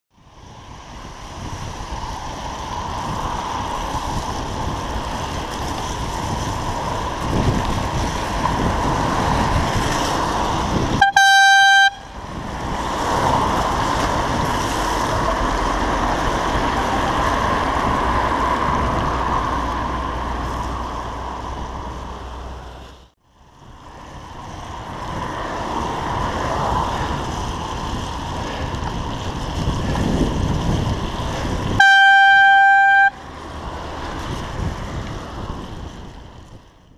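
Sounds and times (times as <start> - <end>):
bicycle tyres on wet road: 0.1 - 36.9
wind: 0.1 - 36.9
horn blast: 11.0 - 12.1, 31.8 - 33.4.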